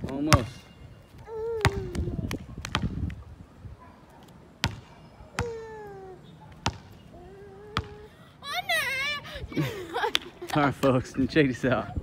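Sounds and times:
basketball bouncing on hard court: 0.3s - 0.5s, 2.6s - 3.2s, 4.6s - 5.6s, 6.6s - 7.0s, 7.8s - 8.0s.

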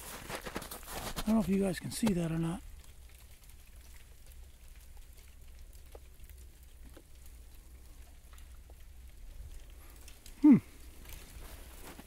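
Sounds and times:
faint patter and ticks: 0.0s - 12.0s
man grunting: 10.4s - 10.7s.

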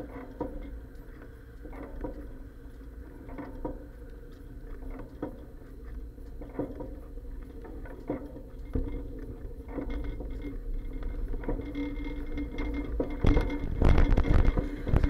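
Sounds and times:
bicycle riding rumble: 8.7s - 15.0s.

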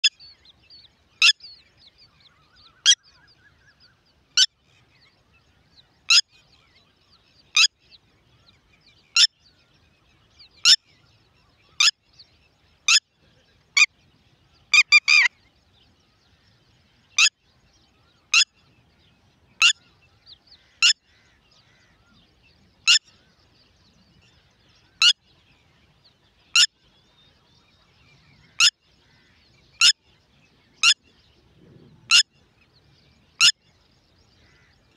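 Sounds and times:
lapwing calling: 14.6s - 15.4s, 17.2s - 17.4s, 22.8s - 23.3s, 26.5s - 26.8s, 28.3s - 30.0s, 30.6s - 31.1s, 32.0s - 32.4s, 33.4s - 33.6s.

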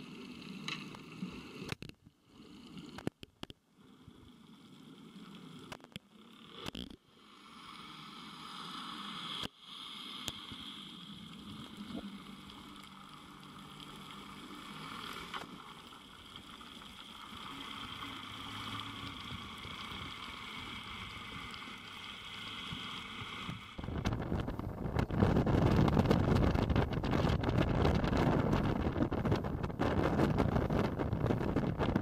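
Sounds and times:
muffled underwater hiss: 0.0s - 25.1s
rushing water: 7.8s - 24.4s
wind buffeting microphone: 23.8s - 32.0s.

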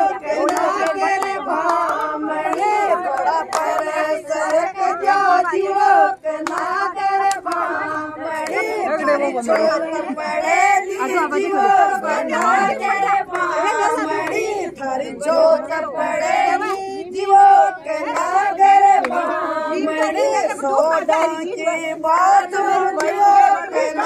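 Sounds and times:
women singing together: 0.0s - 24.0s
hand claps: 0.3s - 5.2s, 6.4s - 8.8s, 12.2s - 14.5s, 18.1s - 19.4s, 22.9s - 23.3s.

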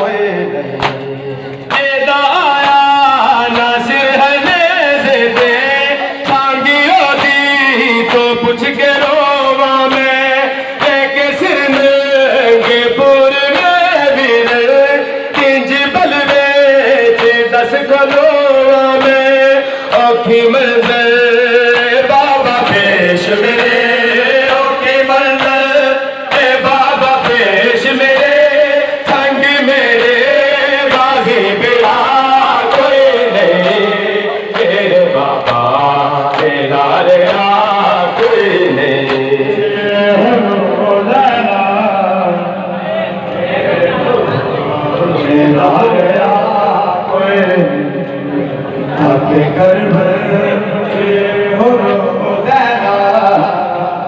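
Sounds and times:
men chanting in unison: 0.0s - 54.0s
hands slapping chests: 0.8s - 1.7s.

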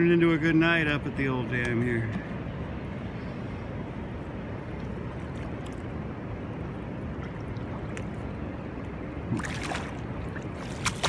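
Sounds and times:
river water rushing: 2.4s - 11.0s.

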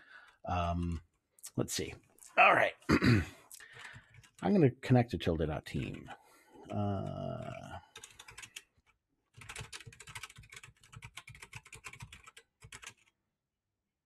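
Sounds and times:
typing on computer keyboard: 3.7s - 4.4s, 7.4s - 8.7s, 9.4s - 13.1s.

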